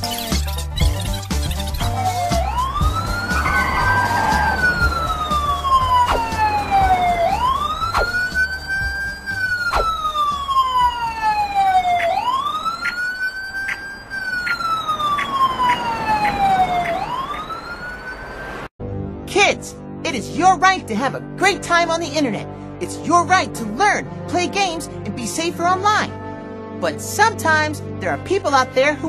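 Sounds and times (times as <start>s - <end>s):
siren wailing: 1.8s - 18.7s.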